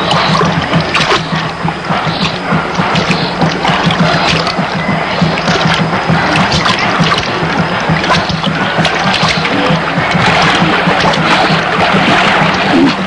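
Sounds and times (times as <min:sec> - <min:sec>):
rushing river water: 0:00.0 - 0:13.0
steady low hum: 0:00.0 - 0:13.0.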